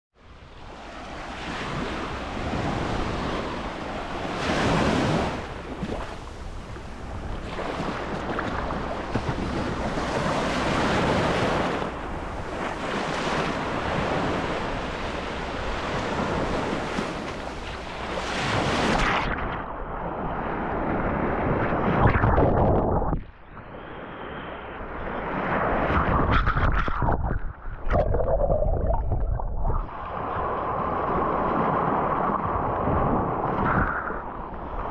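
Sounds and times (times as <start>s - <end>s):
surf breaking on shore: 0.6s - 24.2s
wind buffeting microphone: 0.6s - 34.9s.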